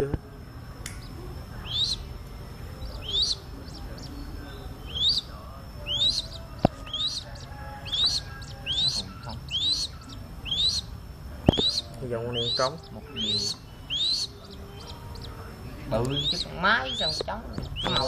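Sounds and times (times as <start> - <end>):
sharp click: 0.8 - 1.1
bird nestling peeping: 0.9 - 18.0.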